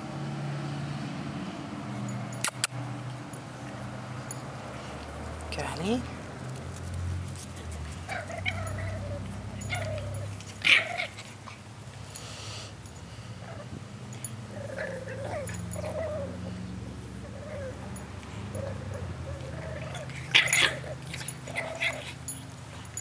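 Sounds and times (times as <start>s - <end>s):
puppies giving short calls: 2.4s - 2.8s, 7.7s - 11.7s, 14.3s - 23.0s
puppy sharp cry: 18.6s - 22.2s.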